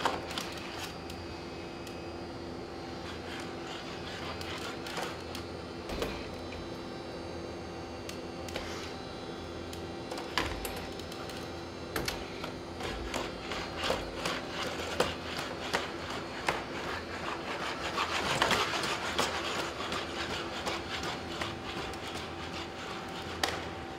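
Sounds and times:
mechanical hum: 0:00.0 - 0:23.9
rubbing sound: 0:12.9 - 0:23.4.

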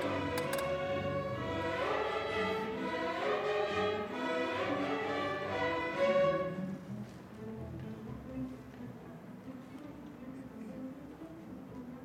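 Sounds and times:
string orchestra playing a waltz: 0:00.0 - 0:12.0.

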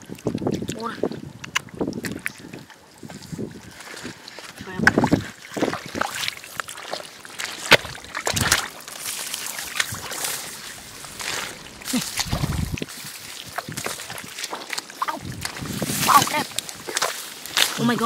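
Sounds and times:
muddy water splashing: 0:00.0 - 0:18.0.

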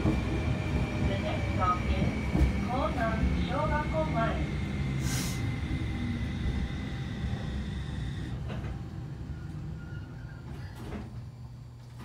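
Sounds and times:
tram motors and wheels rumbling: 0:00.0 - 0:12.0
high inverter whine: 0:03.0 - 0:08.7.

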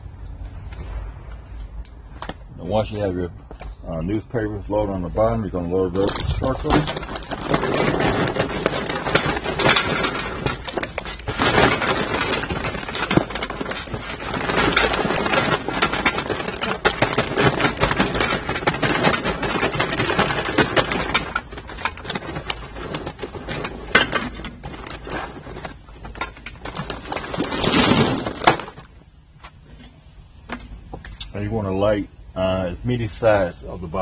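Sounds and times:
charcoal briquettes clattering into metal: 0:05.9 - 0:29.0.

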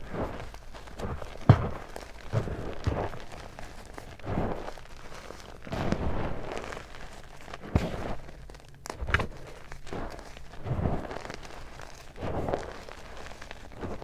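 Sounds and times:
chalk blocks crunching: 0:00.0 - 0:14.0
chalk cracking: 0:00.3 - 0:14.0.

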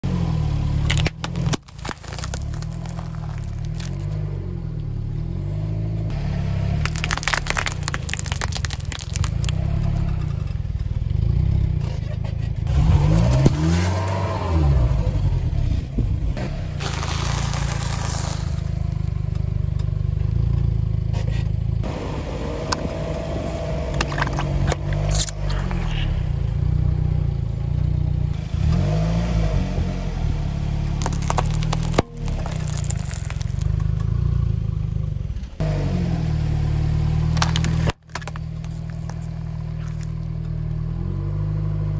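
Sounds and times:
car engine rumbling: 0:00.0 - 0:41.9
scraping on asphalt: 0:00.5 - 0:19.6, 0:21.0 - 0:22.0, 0:23.8 - 0:27.3, 0:30.6 - 0:35.6, 0:37.1 - 0:41.6
tyre crushing snacks: 0:00.9 - 0:04.2, 0:06.8 - 0:09.6, 0:16.8 - 0:18.8, 0:31.0 - 0:33.8, 0:37.3 - 0:40.3.

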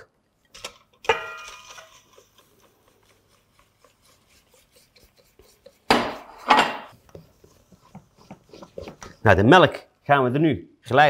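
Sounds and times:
whisk in a metal bowl: 0:01.0 - 0:09.3.

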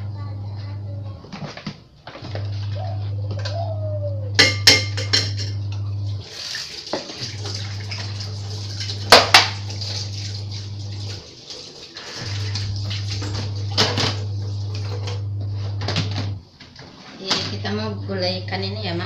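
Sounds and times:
steady low hum: 0:00.0 - 0:06.3, 0:12.0 - 0:19.0
dishes clattering in sink: 0:04.4 - 0:05.6, 0:06.4 - 0:10.2, 0:11.5 - 0:15.2
tap water running: 0:05.0 - 0:15.5.

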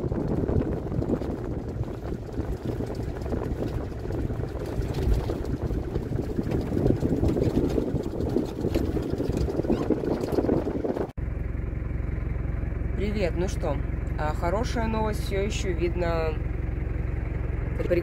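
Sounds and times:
wind buffeting microphone: 0:00.0 - 0:11.2
vehicle driving on dirt track: 0:00.0 - 0:18.0.

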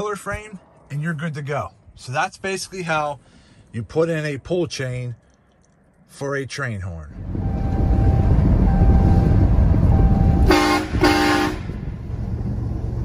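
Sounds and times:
truck rumbling from inside cab: 0:07.1 - 0:13.0
train horn blasts: 0:10.4 - 0:11.8.

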